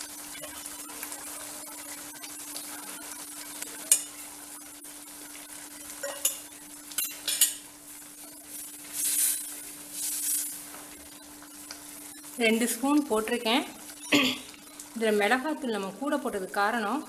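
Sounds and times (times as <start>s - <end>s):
curry simmering: 0.0s - 17.0s
metal spoon clinking on pan: 6.0s - 7.6s.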